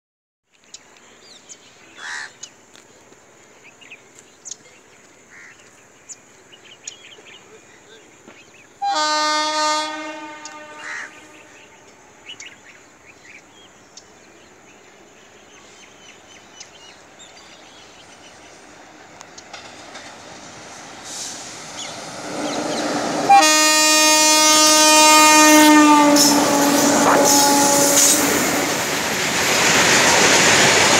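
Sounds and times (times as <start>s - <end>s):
train rumble: 0.8s - 30.9s
locomotive horn blast: 8.8s - 11.8s, 22.4s - 28.8s
bird harsh call: 8.8s - 12.8s
steady high hiss: 10.1s - 23.2s.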